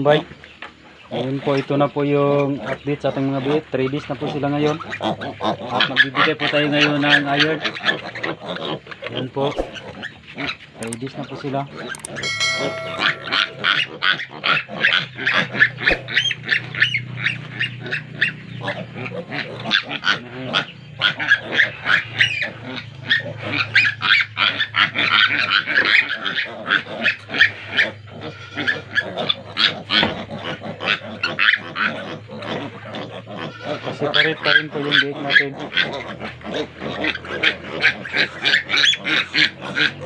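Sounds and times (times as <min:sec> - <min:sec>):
piglets squealing and grunting: 0:01.0 - 0:12.0, 0:14.0 - 0:40.0
low steady hum: 0:11.9 - 0:14.2.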